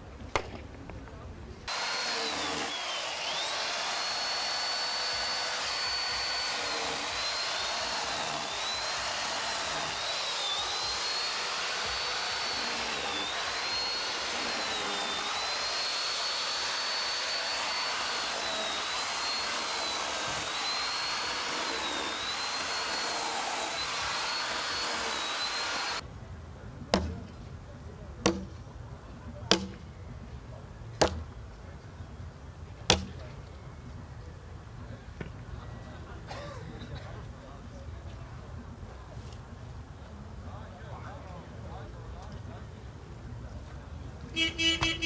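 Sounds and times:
chainsaw cutting wood: 1.7s - 26.0s.

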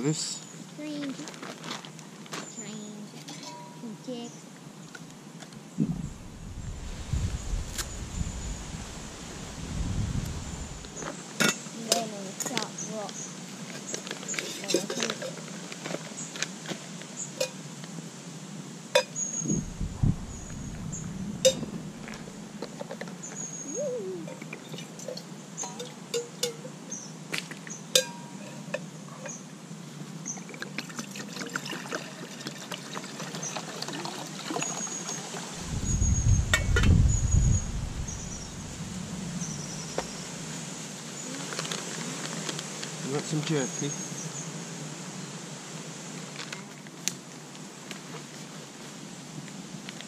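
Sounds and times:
low rumble: 5.8s - 11.0s, 19.4s - 22.5s, 35.6s - 40.5s
metal mugs clinking: 14.4s - 15.4s
water pouring: 30.5s - 35.9s.

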